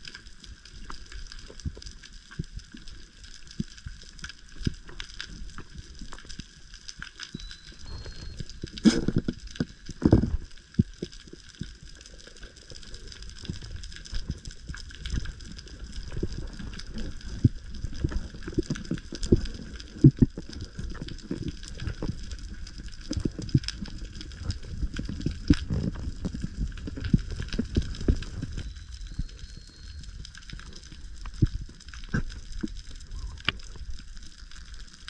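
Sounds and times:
underwater knocks and clicks: 0.1 - 35.0
faint steady high tone: 7.3 - 9.4, 28.4 - 30.9.

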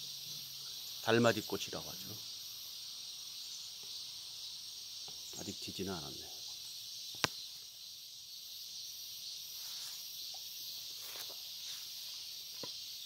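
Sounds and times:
high insect chorus: 0.0 - 13.0
footsteps in long grass: 10.9 - 12.7.

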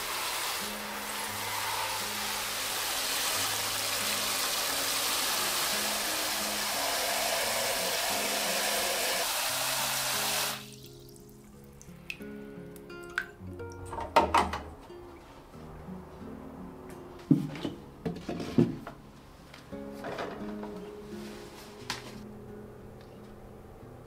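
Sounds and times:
shower head spraying into basin: 0.0 - 10.8
soft background music: 0.1 - 24.0.

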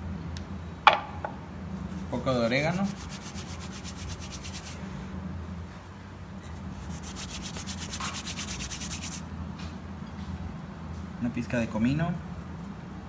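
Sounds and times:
palms rubbing dried herbs: 1.8 - 4.8, 6.7 - 9.2.

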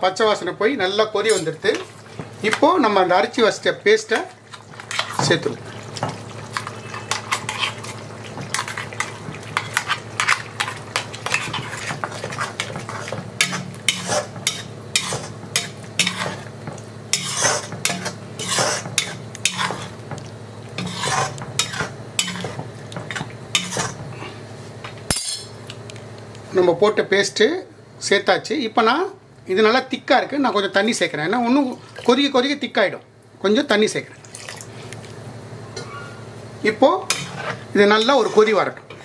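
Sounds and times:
steady low hum: 0.0 - 39.0
metal ladle scraping a pan: 6.5 - 16.5, 17.1 - 19.9, 20.8 - 22.5, 23.5 - 24.0, 37.1 - 38.6.

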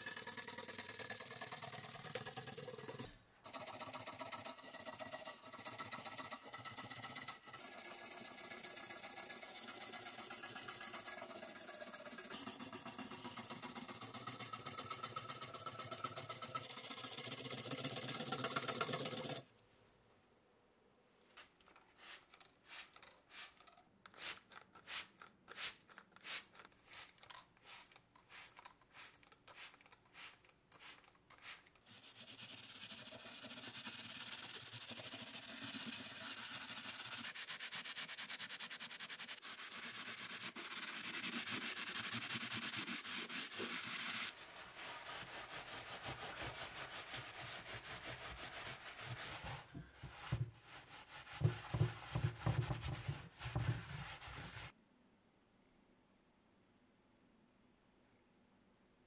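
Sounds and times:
spray bottle squirting: 21.4 - 32.0
paper towel rubbing: 27.8 - 54.7.

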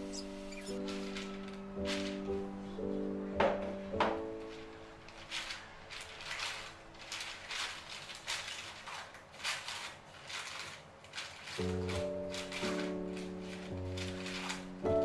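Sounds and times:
parchment paper crinkling: 0.0 - 3.2, 3.8 - 15.0.

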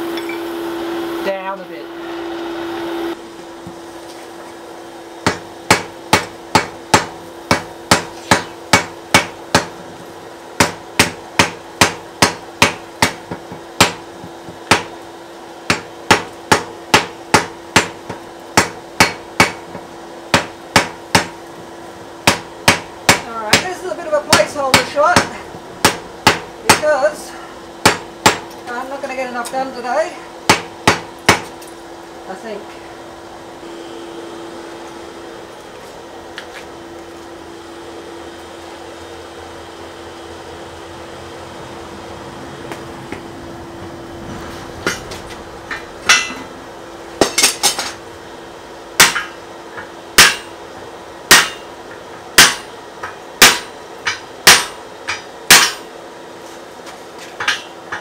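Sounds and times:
steady hum: 0.0 - 58.0
hammer striking hot iron: 5.2 - 15.0, 15.6 - 26.9, 27.8 - 28.7, 30.4 - 31.7, 44.8 - 48.0, 49.0 - 50.7, 51.3 - 55.9.

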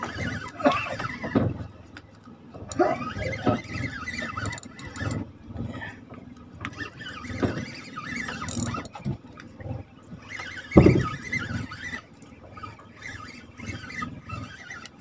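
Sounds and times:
fishing reel whining: 0.0 - 1.7, 2.5 - 5.9, 6.6 - 15.0.

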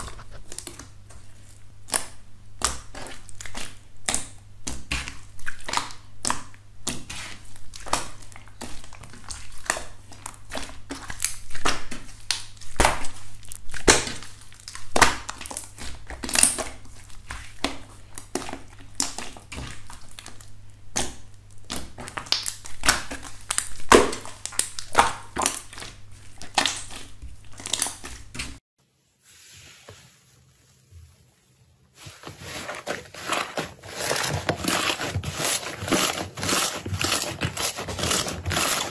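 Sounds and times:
slime popping and crackling: 1.9 - 28.5.

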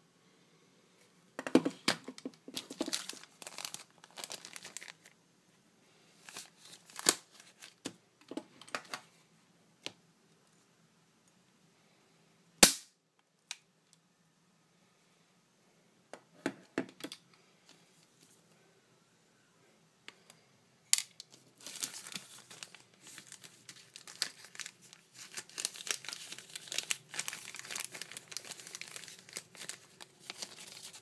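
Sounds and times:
plastic bag crinkling: 2.0 - 5.2, 6.2 - 7.8, 21.2 - 31.0
pistol shot crack: 12.6 - 12.9.

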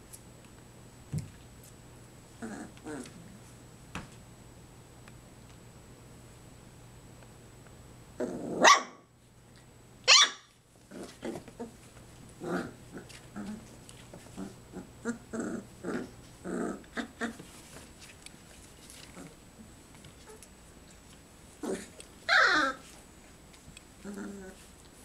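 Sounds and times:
puppies growling and yipping: 12.4 - 17.5, 21.6 - 23.0, 24.0 - 24.6
puppies yelping: 22.3 - 22.8.

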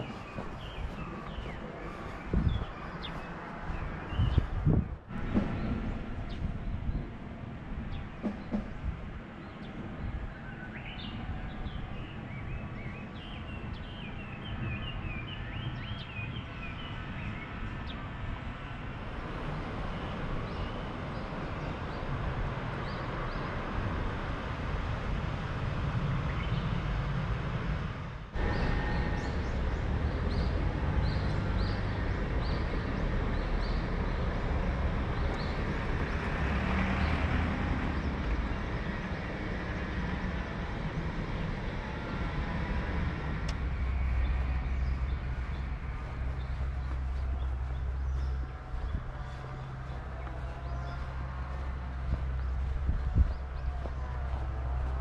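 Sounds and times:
small birds chirping: 0.0 - 7.1, 43.4 - 55.0
steady low rumble: 0.0 - 55.0.

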